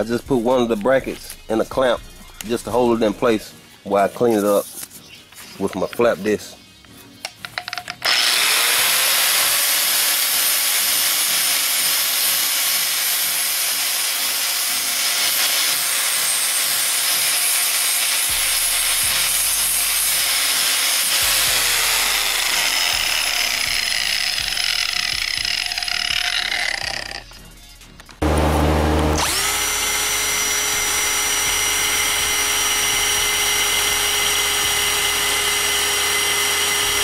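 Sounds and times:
angle grinder grinding metal: 8.0 - 37.0.

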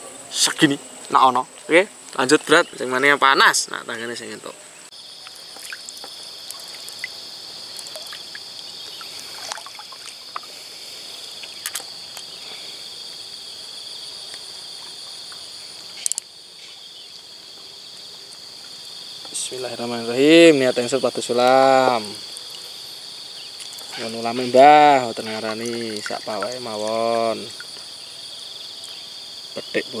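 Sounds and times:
insect chorus: 0.0 - 30.0
small clicks: 16.0 - 16.3.

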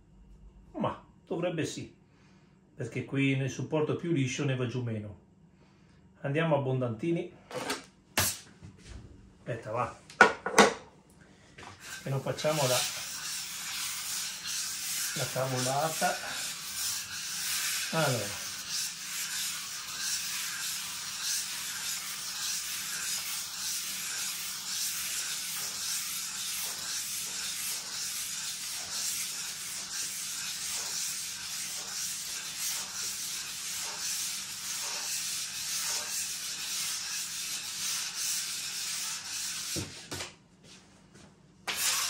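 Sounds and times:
spatula scraping adhesive: 11.8 - 40.0, 41.7 - 42.0.

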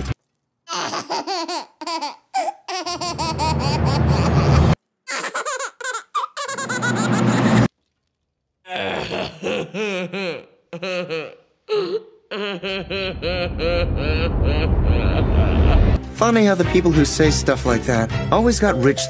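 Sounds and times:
baby laughing: 0.7 - 7.7, 9.5 - 15.8.

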